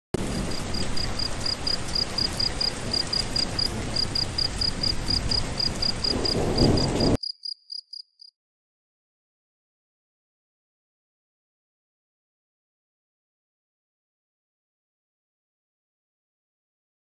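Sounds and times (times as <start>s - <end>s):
cricket chirping: 0.4s - 8.3s.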